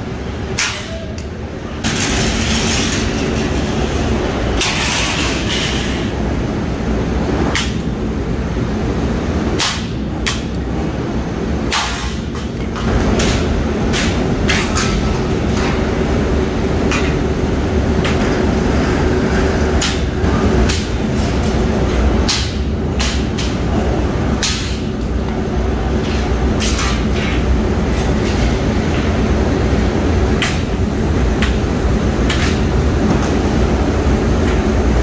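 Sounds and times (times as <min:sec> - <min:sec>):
mill machinery rumble and hum: 0:00.0 - 0:35.0.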